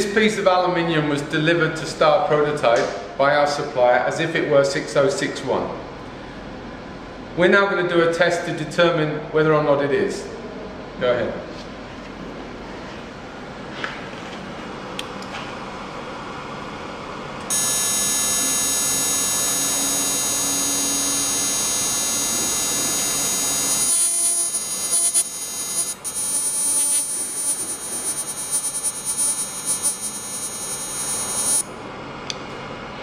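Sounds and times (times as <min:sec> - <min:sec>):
spark probe buzzing: 0:17.5 - 0:31.8.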